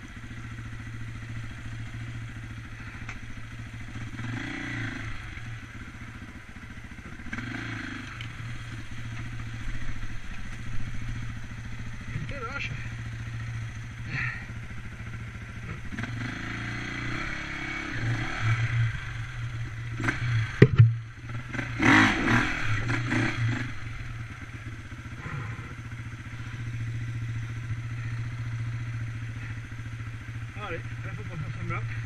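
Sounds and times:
dirt bike engine: 0.0s - 32.0s
knocks and scraping clatter: 20.6s - 21.0s.

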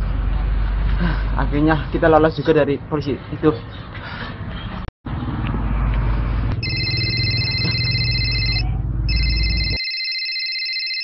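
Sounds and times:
mobile phone ringtone: 6.6s - 11.0s.

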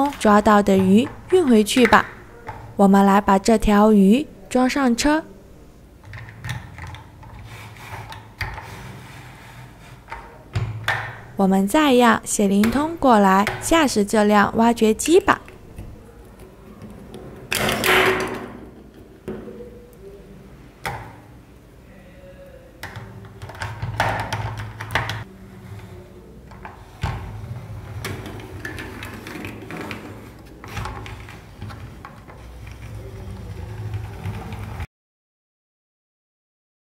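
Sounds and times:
plastic toy parts knocking and scraping: 22.8s - 25.3s, 26.5s - 34.9s.

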